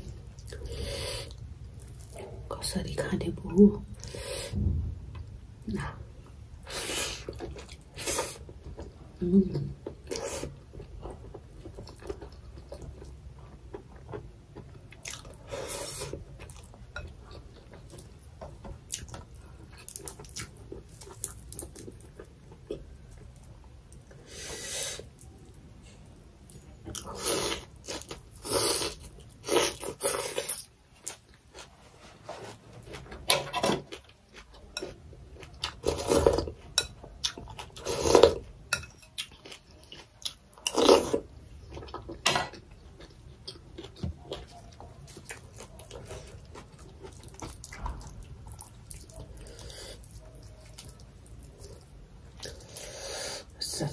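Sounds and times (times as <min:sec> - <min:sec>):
person chewing crunchy food: 0:09.8 - 0:25.5, 0:26.8 - 0:53.5.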